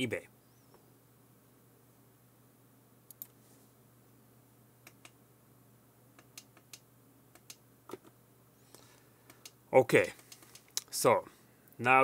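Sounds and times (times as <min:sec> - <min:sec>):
computer keys clicking: 0:03.1 - 0:03.3, 0:09.3 - 0:10.8.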